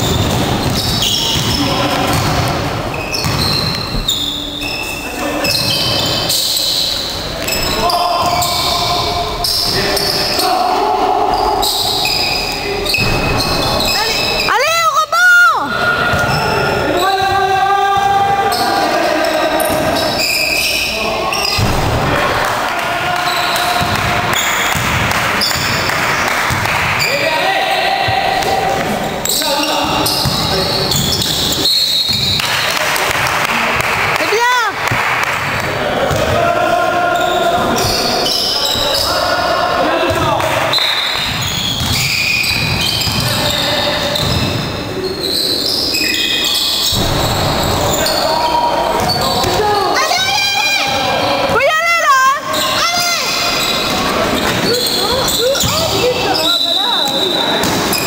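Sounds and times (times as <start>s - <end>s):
thuds of feet and ball: 0.0s - 4.1s
basketball bouncing on court: 0.0s - 4.3s, 23.5s - 27.1s, 30.0s - 36.4s, 40.0s - 43.6s, 44.2s - 44.7s, 49.0s - 49.7s, 52.5s - 56.4s, 57.0s - 58.0s
sneaker squeaks: 0.0s - 10.5s, 11.3s - 14.8s, 15.8s - 21.8s, 23.2s - 25.9s, 26.5s - 32.7s, 37.1s - 39.3s, 40.0s - 58.0s
people calling out: 3.1s - 24.8s, 35.6s - 58.0s.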